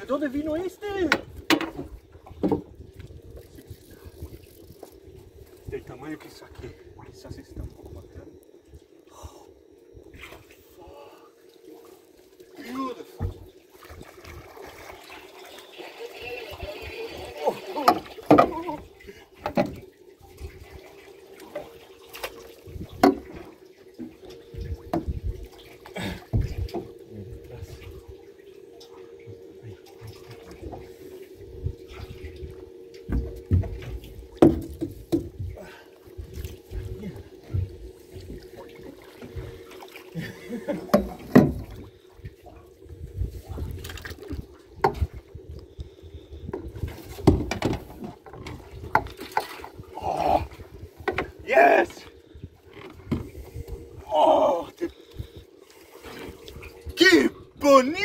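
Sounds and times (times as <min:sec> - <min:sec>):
faint steady hum: 0:00.0 - 0:58.0
water sloshing against boat: 0:00.0 - 0:58.0
water slapping against boat: 0:17.4 - 0:27.0, 0:31.8 - 0:42.6, 0:43.2 - 0:51.8.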